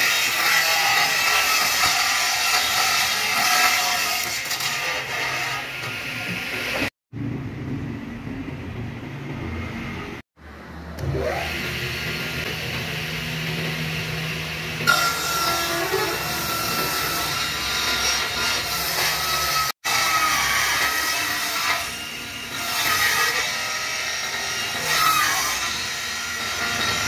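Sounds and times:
table saw ripping wood: 0.0 - 6.9, 14.8 - 27.0.

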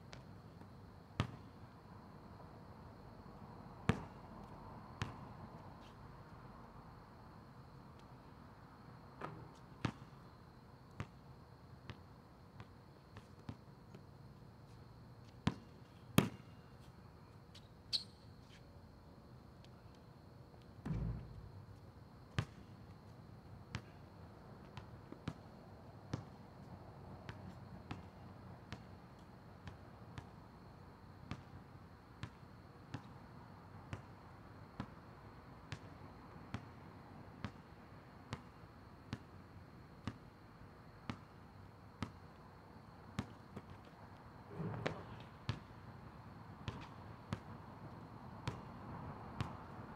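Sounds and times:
basketball bouncing on asphalt: 0.1 - 1.5, 3.9 - 5.9, 9.2 - 10.2, 15.2 - 16.6, 20.8 - 21.6, 24.6 - 26.4, 27.3 - 29.0, 29.7 - 30.4, 33.9 - 34.1, 35.7 - 35.9, 43.1 - 45.8, 46.7 - 47.5, 48.4 - 49.7.

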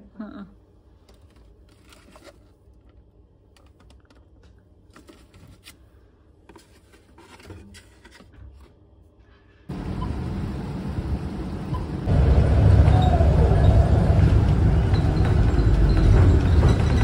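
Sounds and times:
street noise: 9.7 - 17.0.

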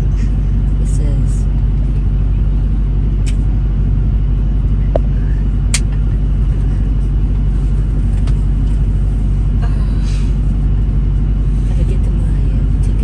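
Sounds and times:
truck engine idling: 0.0 - 13.0.

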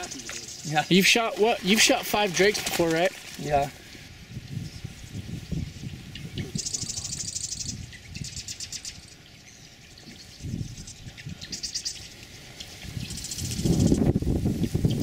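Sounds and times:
small bird trilling: 5.5 - 12.2.

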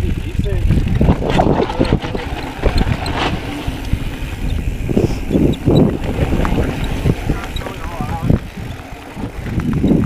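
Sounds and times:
bike rattling: 0.0 - 10.0
bike tyres on dirt: 0.0 - 10.0
wind on microphone: 0.0 - 10.0.

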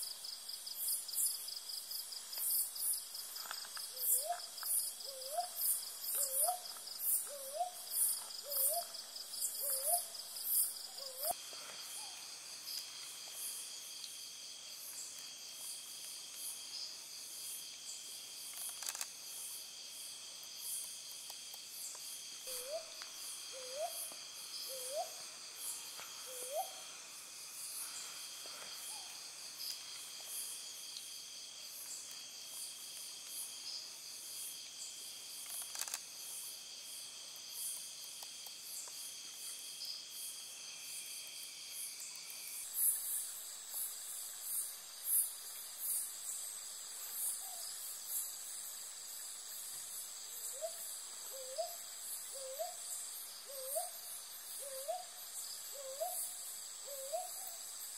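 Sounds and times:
crickets and night insects: 0.0 - 57.9
owl hooting: 4.0 - 6.6, 7.2 - 10.2, 10.9 - 11.4, 22.5 - 25.2, 26.2 - 26.9, 50.5 - 52.8, 53.5 - 54.0, 54.6 - 55.1, 55.7 - 57.6.

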